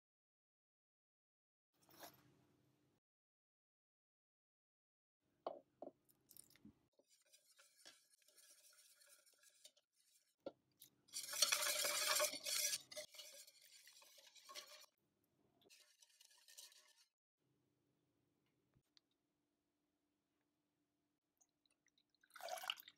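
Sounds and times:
wire whisk scraping bowl: 0:07.2 - 0:10.3, 0:11.1 - 0:14.9, 0:15.7 - 0:17.1.

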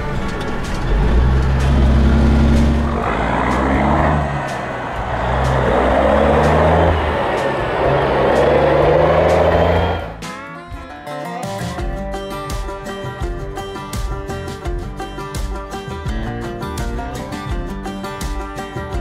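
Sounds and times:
diesel truck shifting gears: 0:00.0 - 0:10.3.

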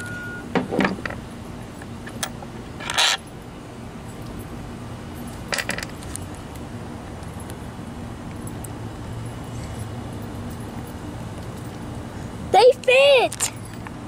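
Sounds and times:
metal parts clinking and rattling: 0:02.0 - 0:03.4, 0:05.2 - 0:06.4.

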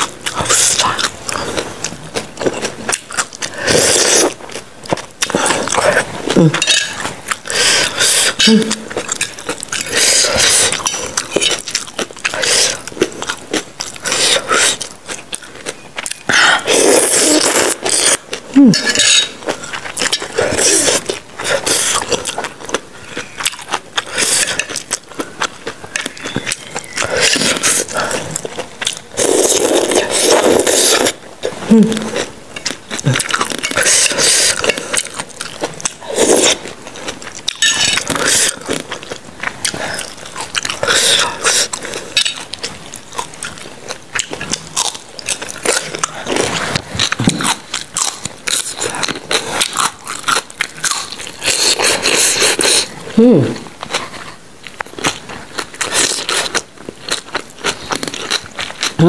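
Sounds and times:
slurping: 0:00.0 - 0:04.5, 0:16.0 - 0:22.6, 0:25.9 - 0:32.4, 0:33.0 - 0:38.8
chewing: 0:00.0 - 0:59.0
cutlery scraping a glass bowl: 0:06.5 - 0:07.1, 0:18.8 - 0:19.4, 0:37.6 - 0:38.1.

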